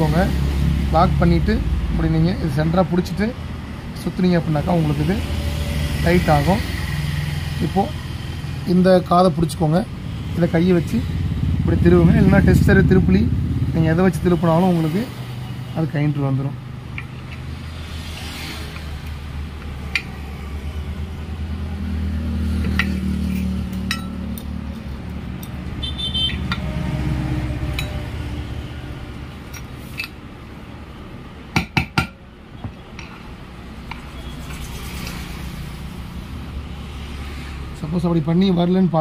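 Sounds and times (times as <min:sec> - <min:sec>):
steady low hum: 0:09.9 - 0:14.4
metal clinks and taps: 0:22.6 - 0:25.6.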